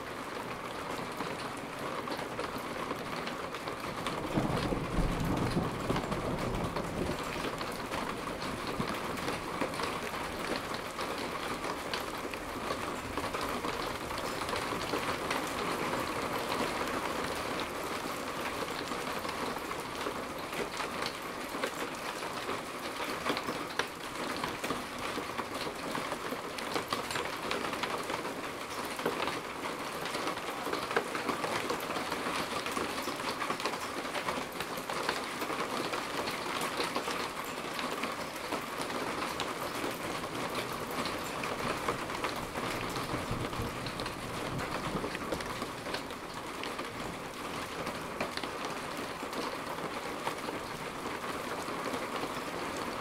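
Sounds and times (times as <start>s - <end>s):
heavy rain falling: 0.0s - 53.0s
thunder rumbling: 4.2s - 9.4s.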